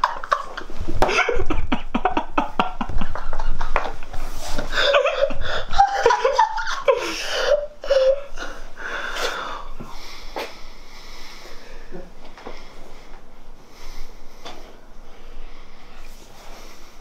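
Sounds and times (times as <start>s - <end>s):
young man laughing hard: 0.0s - 8.6s.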